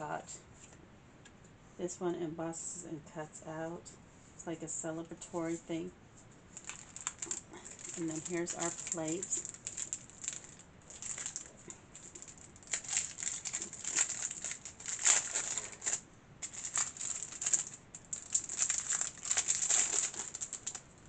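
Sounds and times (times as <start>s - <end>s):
plastic packaging crinkling: 6.5s - 21.0s.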